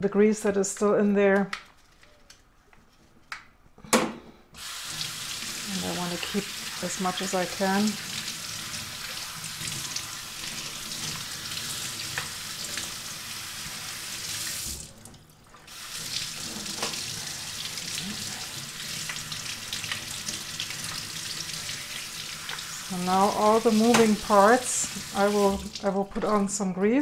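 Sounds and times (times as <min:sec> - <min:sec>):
tap water splashing in a sink: 0:14.4 - 0:18.0, 0:18.8 - 0:22.7, 0:23.6 - 0:26.4.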